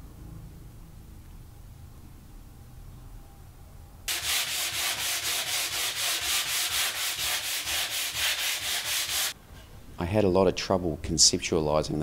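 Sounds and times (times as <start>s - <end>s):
sandpaper rasping on wood: 4.1s - 9.4s.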